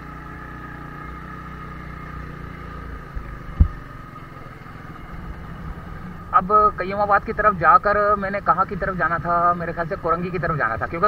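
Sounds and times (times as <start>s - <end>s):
motorcycle engine running: 0.0s - 11.0s
sharp thump: 3.5s - 3.8s.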